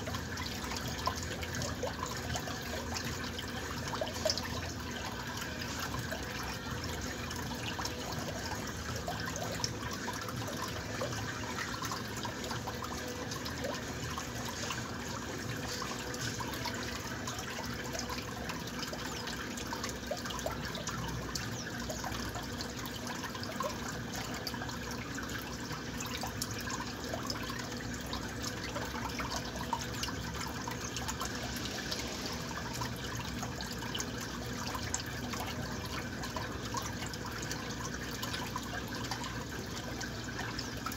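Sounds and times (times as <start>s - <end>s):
washing machine water rushing: 0.0s - 40.9s.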